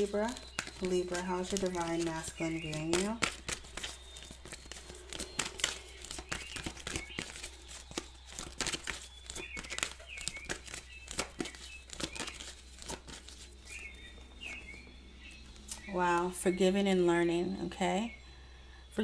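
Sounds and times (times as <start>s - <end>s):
cards being shuffled: 0.0s - 14.8s.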